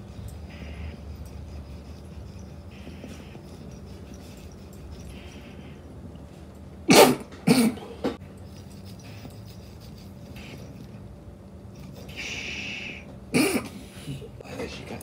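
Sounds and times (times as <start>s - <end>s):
man coughing hard: 6.9s - 8.1s, 13.3s - 13.8s.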